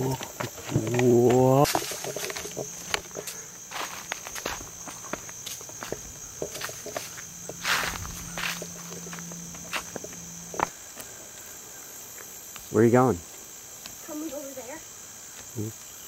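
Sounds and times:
footsteps on stones: 0.0s - 11.4s
insects droning: 0.0s - 16.0s.

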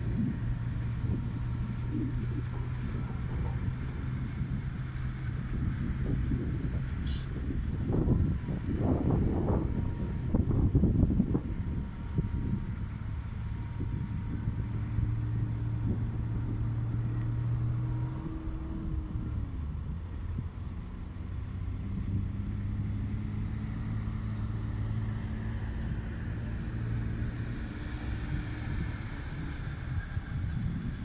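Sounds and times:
diesel engines running: 0.0s - 31.0s.

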